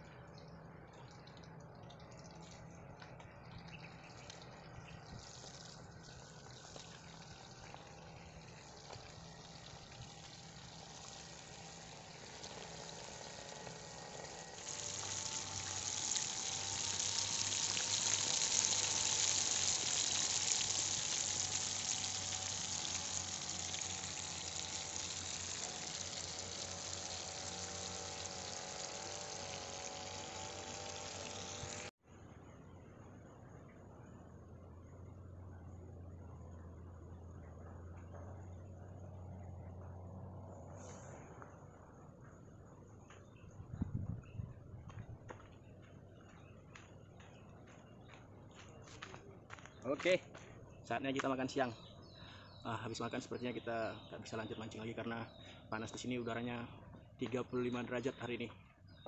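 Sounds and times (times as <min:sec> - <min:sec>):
fish sizzling in hot oil: 0:05.2 - 0:31.9.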